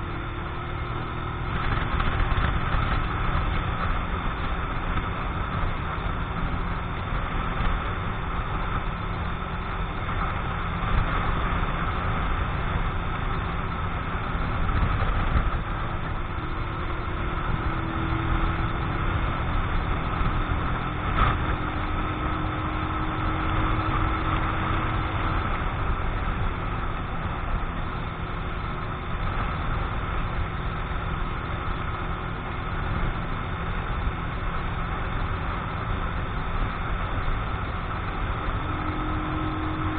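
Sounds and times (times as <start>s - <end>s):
motorcycle engine running: 0.0s - 39.9s
wind rumbling over microphone: 0.0s - 39.9s.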